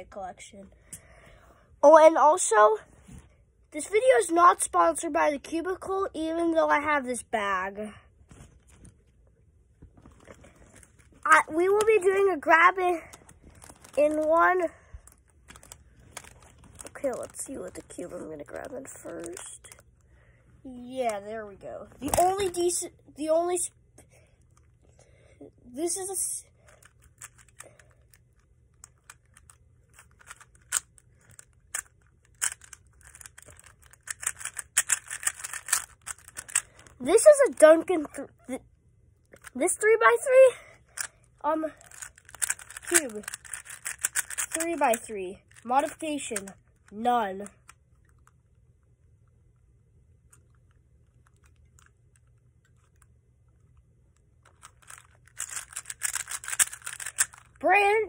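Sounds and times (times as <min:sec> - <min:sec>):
puzzle cube plastic clicks: 0:15.1 - 0:19.9, 0:26.6 - 0:37.8, 0:40.9 - 0:41.1, 0:41.8 - 0:48.4, 0:54.4 - 0:57.8.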